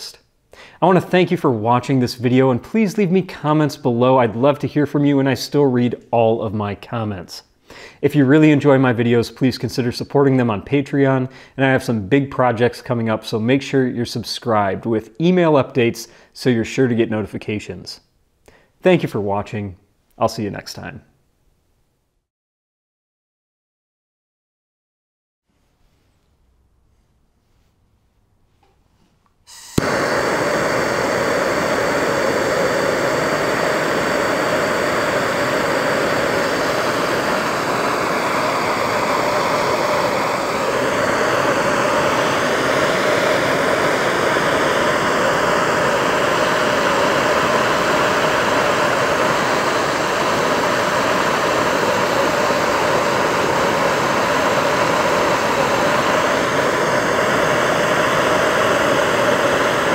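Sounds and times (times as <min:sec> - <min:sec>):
propane torch lighting pop: 0:29.5 - 0:59.9
torch flame rushing hiss: 0:29.5 - 0:59.9.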